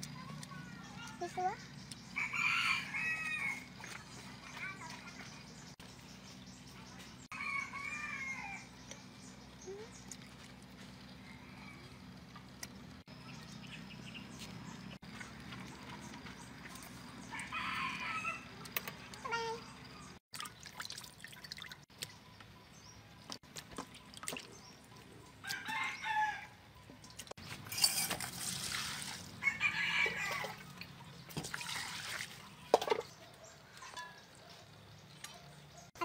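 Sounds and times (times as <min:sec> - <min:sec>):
roosters crowing: 0:02.1 - 0:03.8, 0:07.3 - 0:08.8, 0:11.0 - 0:12.3, 0:17.1 - 0:18.6, 0:25.4 - 0:26.7, 0:29.3 - 0:30.8
liquid pouring: 0:20.4 - 0:21.8, 0:28.0 - 0:29.3.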